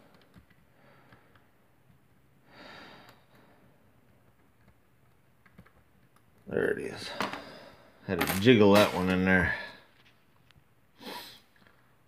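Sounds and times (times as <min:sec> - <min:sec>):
soft breath: 0:07.1 - 0:08.0.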